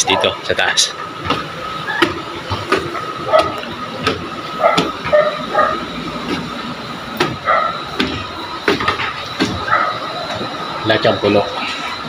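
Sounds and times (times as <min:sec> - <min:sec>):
dog barking: 0:00.0 - 0:00.4, 0:03.2 - 0:03.6, 0:04.5 - 0:05.9, 0:07.4 - 0:07.8, 0:09.6 - 0:10.2.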